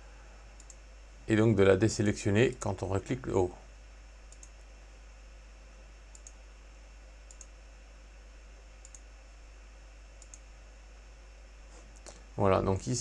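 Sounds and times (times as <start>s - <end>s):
steady low hum: 0.0s - 13.0s
computer mouse clicks: 0.6s - 0.8s, 4.3s - 4.7s, 6.1s - 6.4s, 7.2s - 7.6s, 8.8s - 9.1s, 10.2s - 10.5s.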